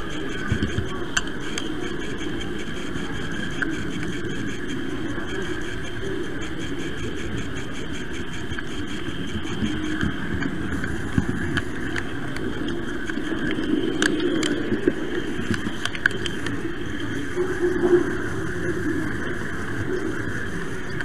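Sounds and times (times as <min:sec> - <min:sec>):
model train motor hum: 0:00.0 - 0:10.1.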